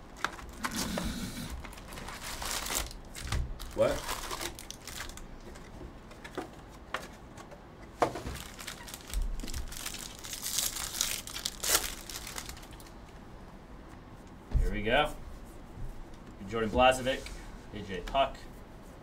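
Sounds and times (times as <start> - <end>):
foil wrappers tearing and crinkling: 0.1 - 5.3, 8.3 - 12.9.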